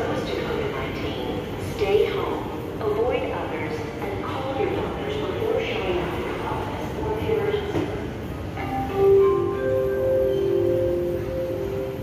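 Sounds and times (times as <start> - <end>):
background noise: 0.0 - 12.0
chime notes ringing: 8.6 - 12.0.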